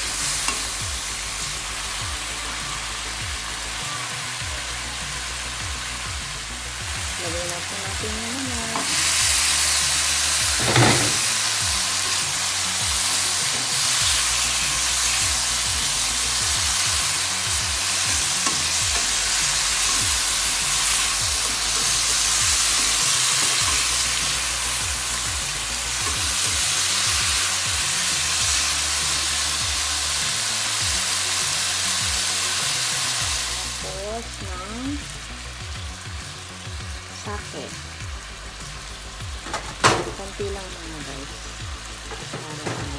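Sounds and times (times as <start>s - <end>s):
meat sizzling in hot oil: 0.0s - 42.9s
spatula scraping a wok: 8.7s - 27.4s.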